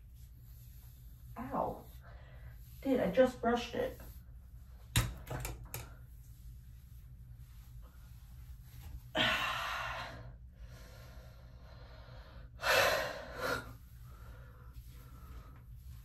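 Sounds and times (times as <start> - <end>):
woman sighing: 9.1 - 10.2.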